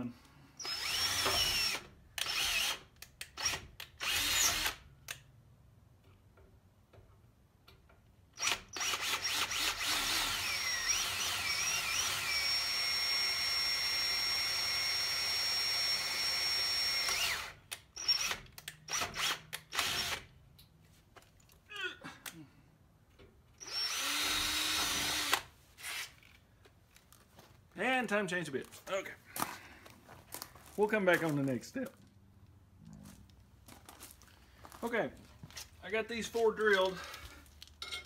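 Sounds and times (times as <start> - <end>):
power drill boring through metal: 0.6 - 4.8, 8.4 - 20.3, 23.6 - 26.1.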